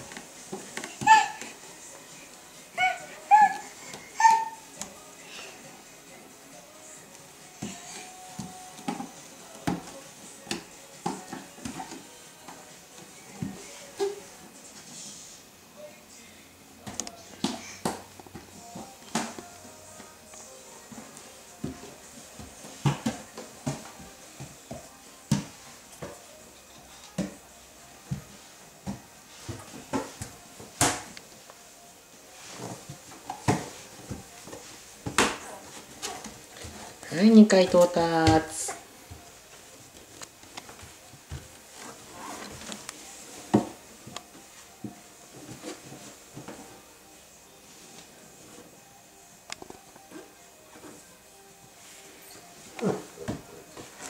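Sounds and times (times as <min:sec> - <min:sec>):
child crawling on wooden stairs: 0:00.0 - 0:01.6
hands and feet thumping on stairs: 0:20.9 - 0:26.3, 0:32.4 - 0:37.0, 0:37.7 - 0:39.3, 0:39.9 - 0:44.2.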